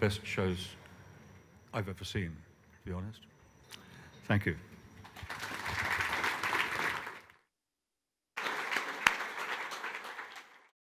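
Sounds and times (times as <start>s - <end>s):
audience applauding: 5.0s - 7.4s, 8.4s - 10.8s.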